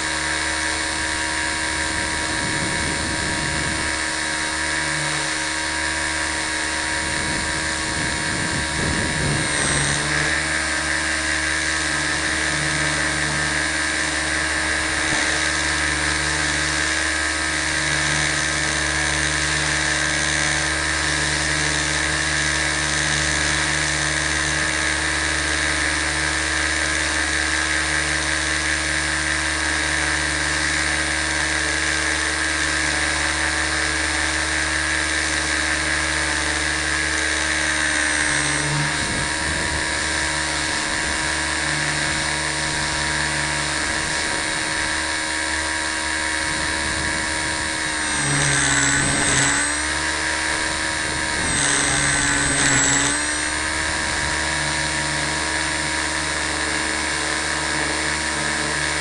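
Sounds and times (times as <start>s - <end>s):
rc helicopter motor whine: 0.0s - 59.0s.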